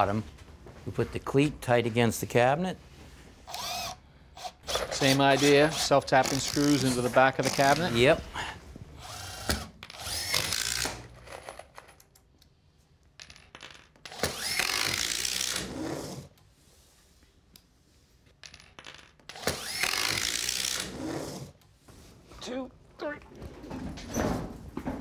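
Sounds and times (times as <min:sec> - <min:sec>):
cordless drill driving screws: 0:03.5 - 0:08.0, 0:09.0 - 0:11.2, 0:14.0 - 0:16.3, 0:19.3 - 0:21.5.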